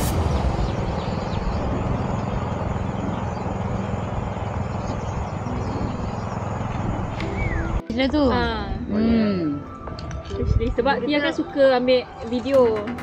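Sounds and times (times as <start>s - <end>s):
engine rumble: 0.0s - 13.0s
wind noise on microphone: 10.0s - 11.0s.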